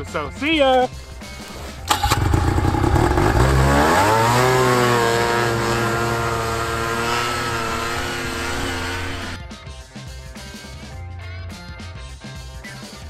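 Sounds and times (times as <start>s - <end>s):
snowmobile engine revving: 1.8s - 9.4s.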